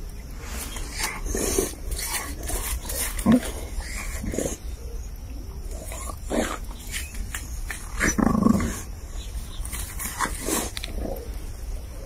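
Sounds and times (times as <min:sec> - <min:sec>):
dogs growling: 0:00.9 - 0:04.8, 0:05.6 - 0:09.3.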